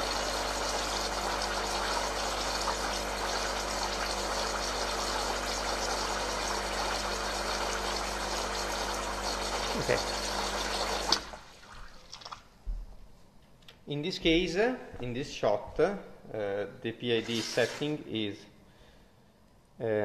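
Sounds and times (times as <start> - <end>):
espresso machine pump humming: 0.0 - 11.5, 17.2 - 18.0.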